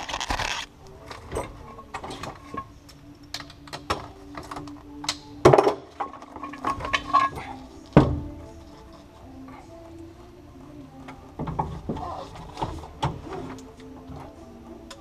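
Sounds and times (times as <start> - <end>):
hand tools clinking: 0.1 - 7.9.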